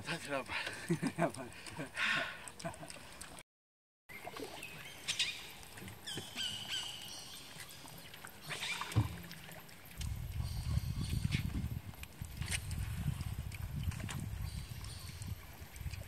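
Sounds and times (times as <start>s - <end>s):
birds chirping: 4.1s - 9.3s.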